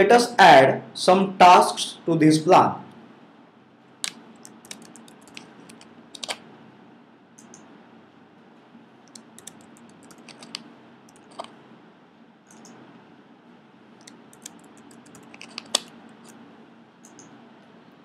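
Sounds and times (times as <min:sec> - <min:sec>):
typing on computer keyboard: 0:04.4 - 0:06.4, 0:09.1 - 0:11.5, 0:12.5 - 0:12.8, 0:14.0 - 0:16.4
mouse clicks: 0:12.5 - 0:12.8, 0:14.0 - 0:16.4.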